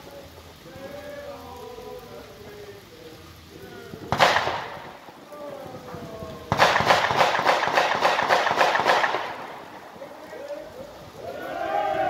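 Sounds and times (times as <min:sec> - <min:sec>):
rapid firework crackling pops: 0:03.1 - 0:11.0.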